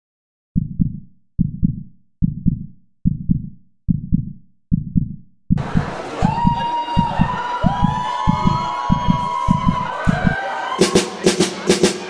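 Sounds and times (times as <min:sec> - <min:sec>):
heartbeat double thump: 0:00.6 - 0:10.4
crowd cheering: 0:05.6 - 0:12.0
music: 0:05.7 - 0:12.0.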